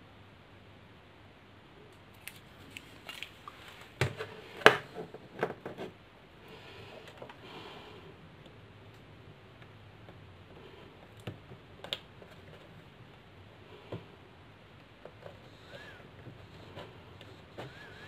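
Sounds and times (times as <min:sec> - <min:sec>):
hands handling plastic fan: 0:02.2 - 0:05.9.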